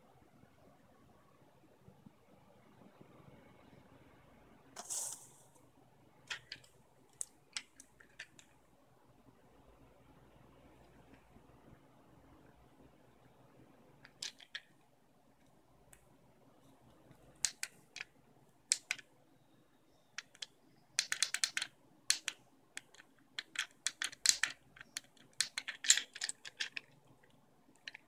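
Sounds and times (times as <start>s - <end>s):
fidget cube clicking: 17.4s - 18.1s, 18.7s - 19.0s, 20.2s - 27.0s.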